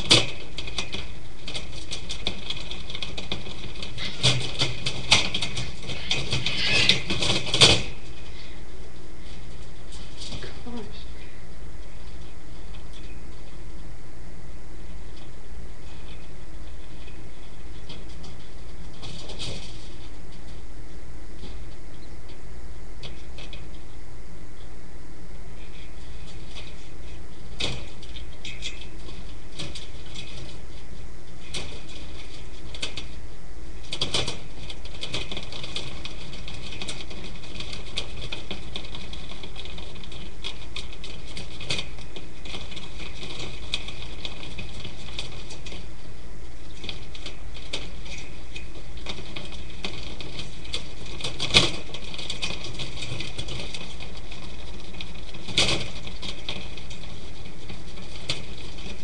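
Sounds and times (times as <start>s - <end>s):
steady hiss: 0.0s - 59.0s.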